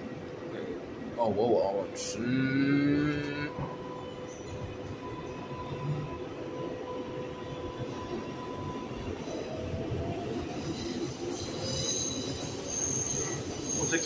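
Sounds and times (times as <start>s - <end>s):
train whine: 0.0s - 14.0s
train wheels rumbling on track: 3.0s - 14.0s.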